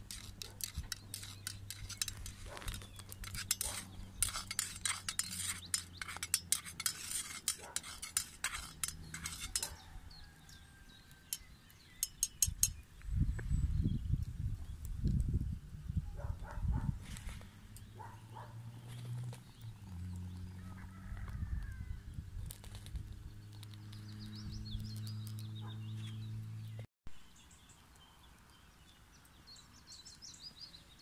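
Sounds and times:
metal spoon clinking in metal mug: 11.3 - 12.8.

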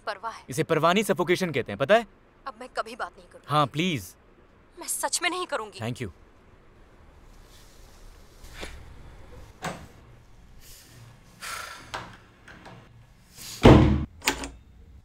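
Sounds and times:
faint knocks and shuffles: 6.2 - 11.3
wooden door slamming: 13.6 - 14.1.

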